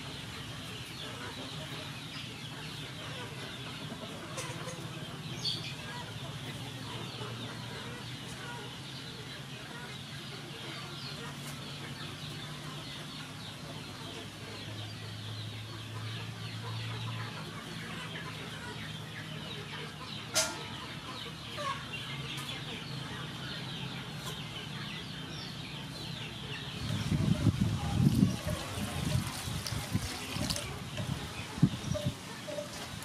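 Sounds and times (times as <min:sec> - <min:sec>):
poultry calling and chirping: 0:00.0 - 0:33.0.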